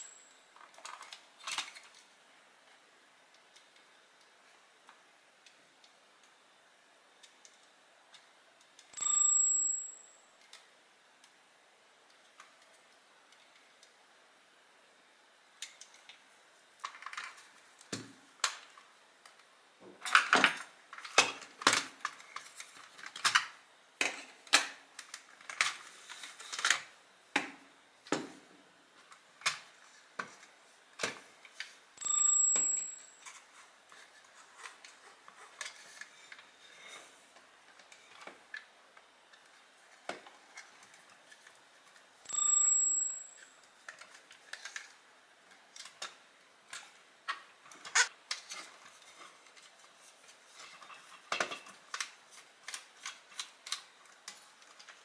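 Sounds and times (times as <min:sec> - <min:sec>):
plastic parts clicking and knocking: 0:45.7 - 0:55.0.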